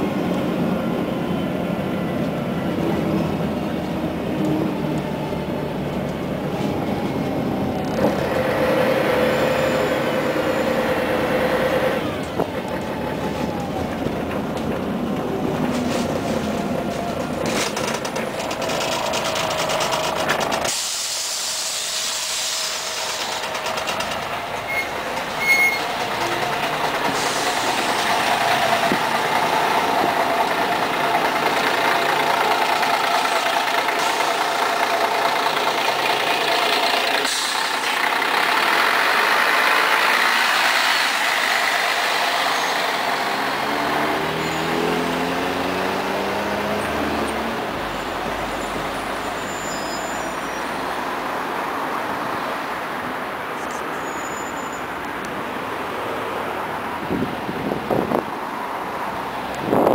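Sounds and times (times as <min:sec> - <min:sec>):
bus engine running: 0:00.0 - 0:59.9
compressed air hiss: 0:20.7 - 0:23.4, 0:27.2 - 0:28.0, 0:37.2 - 0:37.9.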